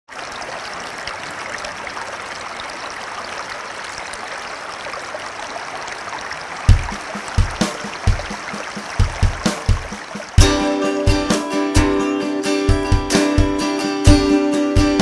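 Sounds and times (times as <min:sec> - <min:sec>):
running trickling water: 0:00.1 - 0:15.0
guitar music: 0:10.4 - 0:15.0.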